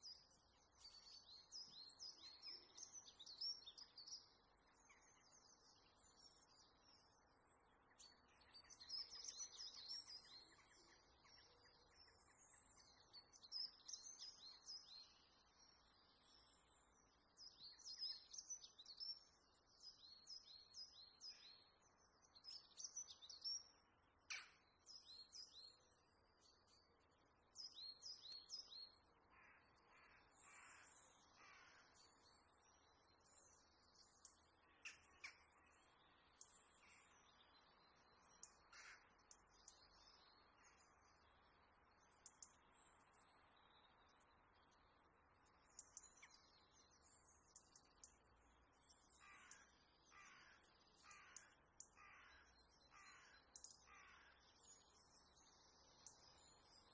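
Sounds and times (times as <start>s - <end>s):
small birds twittering: 0.0s - 56.9s
harsh crow-like calls: 49.2s - 54.4s.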